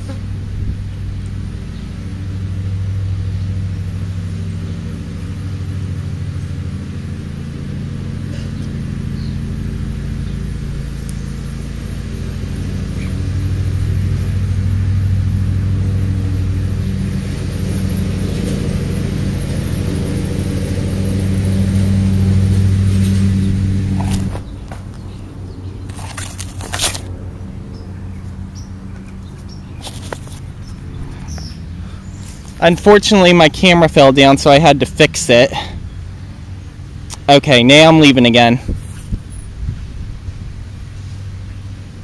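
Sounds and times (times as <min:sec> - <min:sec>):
low engine hum: 0:00.0 - 0:42.0.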